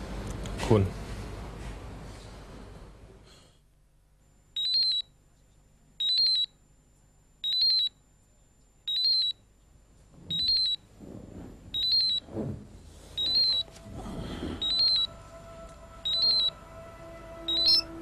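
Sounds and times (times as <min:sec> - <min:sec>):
mobile phone ringtone: 0:04.6 - 0:05.0, 0:06.0 - 0:06.5, 0:08.9 - 0:09.3, 0:10.3 - 0:10.8, 0:11.8 - 0:12.2, 0:13.2 - 0:13.8, 0:14.6 - 0:15.2, 0:16.0 - 0:16.6, 0:17.4 - 0:18.0.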